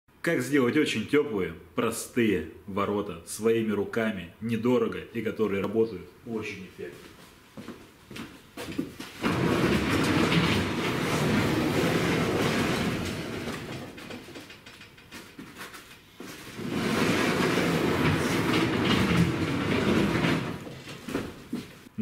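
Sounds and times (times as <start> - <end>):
garage door rollers rumbling: 8.6 - 21.9.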